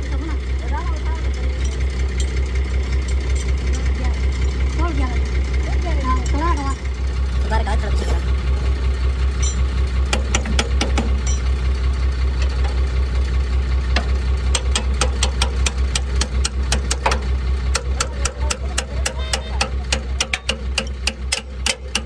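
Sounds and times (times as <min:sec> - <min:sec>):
engine idling: 0:00.0 - 0:22.0
sharp metallic tool clicks: 0:14.5 - 0:22.0.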